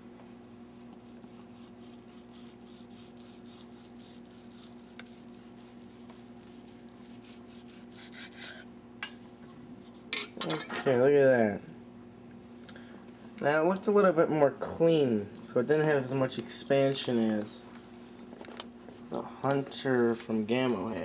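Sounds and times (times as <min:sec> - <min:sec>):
knife sawing through meat: 0:00.2 - 0:08.7.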